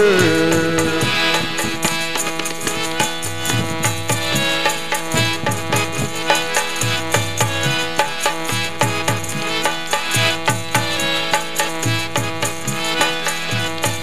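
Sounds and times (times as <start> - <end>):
hand drum strokes: 0.0 - 9.5.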